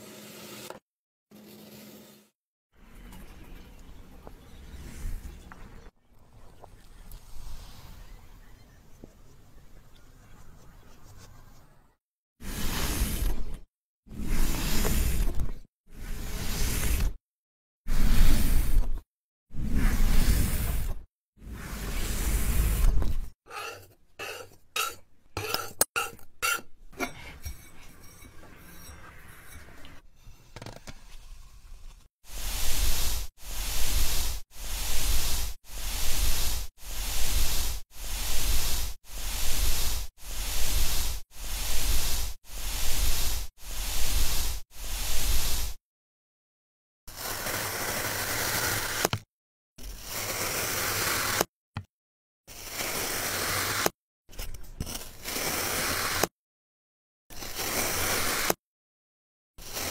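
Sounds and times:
knife slicing kinetic sand: 19.6s - 26.7s, 47.1s - 49.3s, 52.5s - 54.0s, 54.9s - 56.4s, 57.3s - 58.6s, 59.6s - 59.9s.

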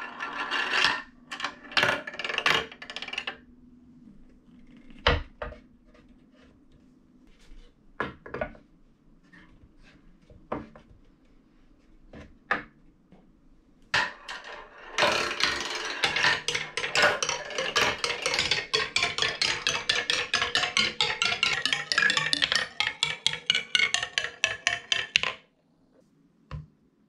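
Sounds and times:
marbles clacking down wooden track: 0.0s - 3.4s, 14.0s - 25.4s
wooden toy pieces knocking: 0.0s - 3.4s, 14.0s - 25.4s.

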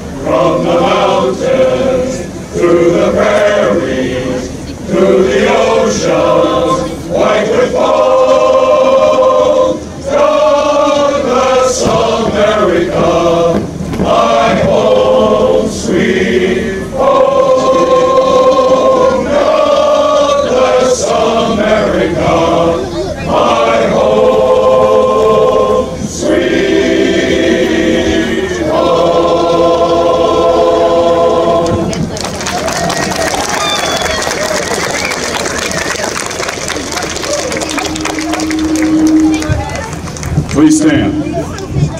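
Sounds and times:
men's chorus singing: 0.0s - 32.1s.

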